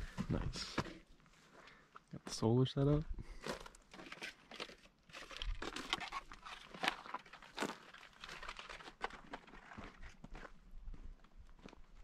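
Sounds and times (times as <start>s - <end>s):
footsteps crunching on gravelly dirt: 3.3s - 12.0s.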